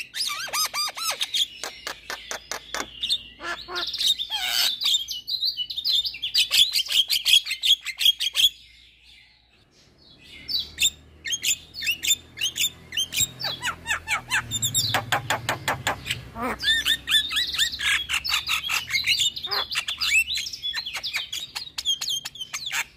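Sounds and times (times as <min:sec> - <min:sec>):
bird chattering whistles and clicks: 0:00.2 - 0:03.2, 0:14.4 - 0:22.9.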